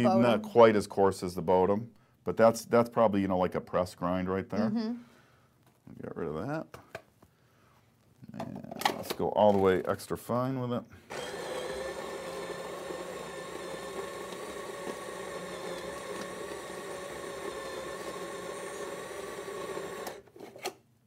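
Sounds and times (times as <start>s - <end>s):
coffee grinder grinding beans: 11.1s - 20.6s.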